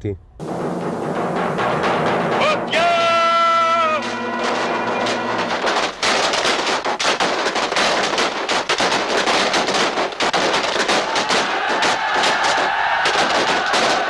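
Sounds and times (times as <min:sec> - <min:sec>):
musket fire: 0:04.0 - 0:14.0.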